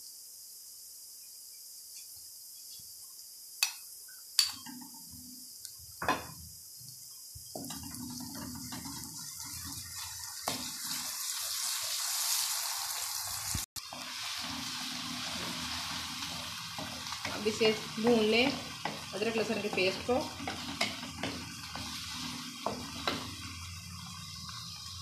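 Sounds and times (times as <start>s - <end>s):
onions sizzling in oil: 4.4s - 25.0s
wooden spatula stirring: 16.2s - 24.6s
sharp knocks in a metal pan: 18.8s - 21.5s.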